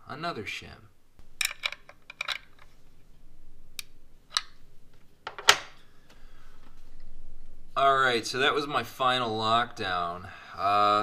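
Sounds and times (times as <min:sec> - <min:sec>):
metallic clicks of tools: 0:01.4 - 0:02.7.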